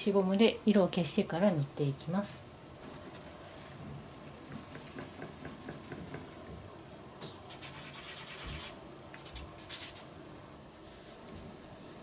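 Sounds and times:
rubbing on drawing paper: 0:07.5 - 0:10.1.

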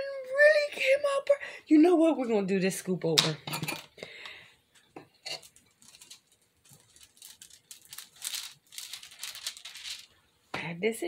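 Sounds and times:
sheet crinkling: 0:05.4 - 0:10.2.

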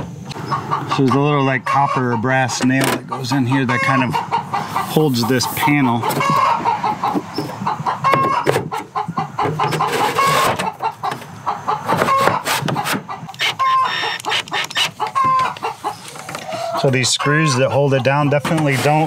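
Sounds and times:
hens clucking and cackling: 0:00.0 - 0:19.0.

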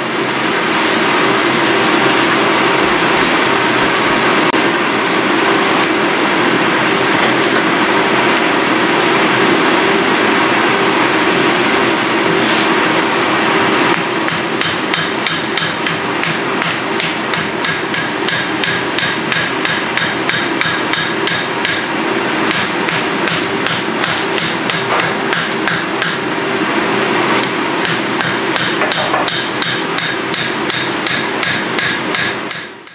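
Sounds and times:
hammer on hot iron on anvil: 0:13.9 - 0:26.3, 0:27.4 - 0:32.9.

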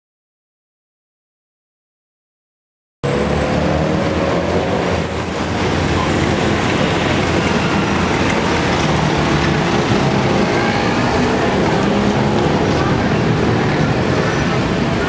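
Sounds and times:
road traffic engines: 0:03.0 - 0:15.0.

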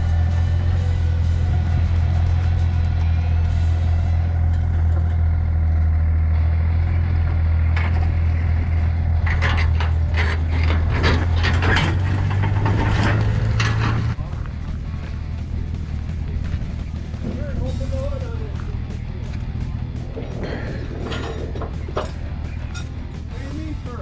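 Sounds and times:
steady low hum: 0:00.0 - 0:24.0
trailer creaks and clanks: 0:00.0 - 0:24.0
wheels rolling on wooden deck: 0:07.4 - 0:17.9, 0:18.8 - 0:23.3.

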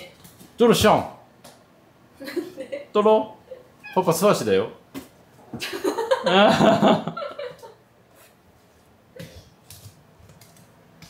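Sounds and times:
cat meowing: 0:03.8 - 0:04.1.

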